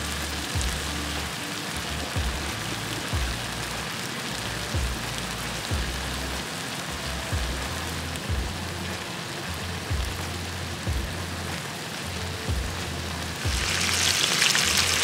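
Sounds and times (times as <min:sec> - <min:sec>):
chicken sizzling in a pan: 0:00.0 - 0:15.0
low background music: 0:00.0 - 0:15.0.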